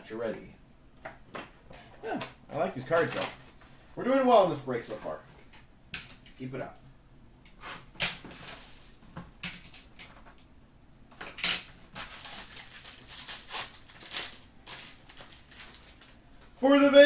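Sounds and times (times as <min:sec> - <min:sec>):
packaging crinkling and rustling: 0:11.2 - 0:16.2
sharp packaging crackles: 0:11.2 - 0:16.2.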